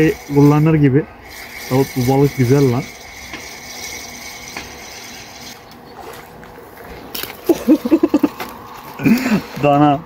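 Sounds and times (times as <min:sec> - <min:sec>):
fishing reel whirring: 0:01.2 - 0:05.6.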